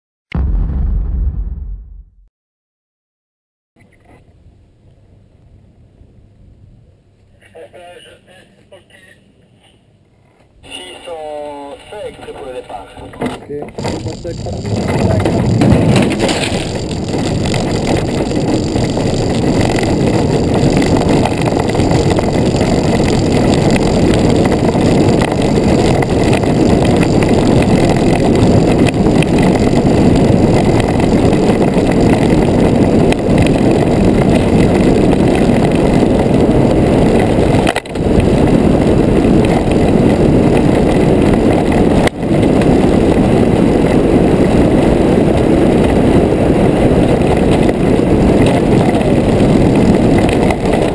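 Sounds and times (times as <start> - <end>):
wind rushing: 0.4 - 2.2, 13.8 - 50.9
wheels rumbling on road: 13.4 - 50.9.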